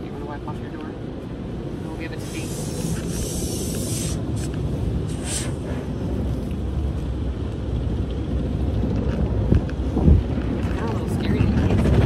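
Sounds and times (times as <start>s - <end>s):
car wash brushes rumbling: 1.7s - 12.0s
spray hiss: 2.1s - 5.7s.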